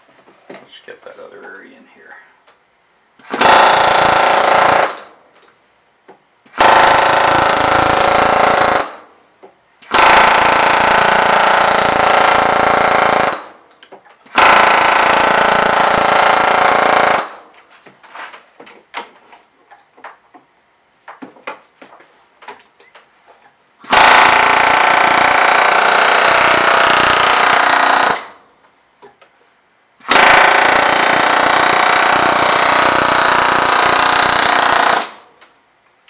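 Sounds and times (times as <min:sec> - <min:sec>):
pneumatic air hammer hammering: 0:03.2 - 0:05.1, 0:06.5 - 0:09.0, 0:09.8 - 0:17.4, 0:23.8 - 0:28.4, 0:30.0 - 0:35.3.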